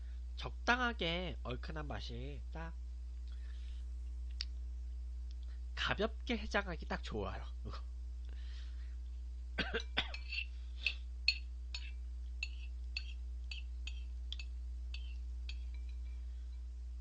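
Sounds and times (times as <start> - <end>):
low electrical hum: 0.0 - 17.0
spoon clinking on ceramic bowl: 9.8 - 16.6.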